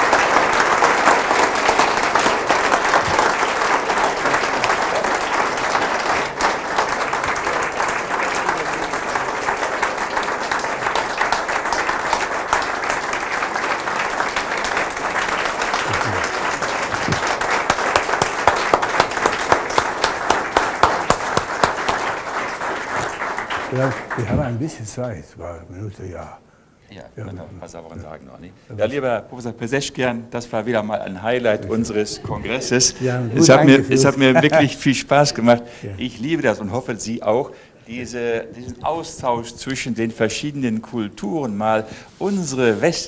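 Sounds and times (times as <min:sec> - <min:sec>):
audience applause: 0:00.0 - 0:24.8.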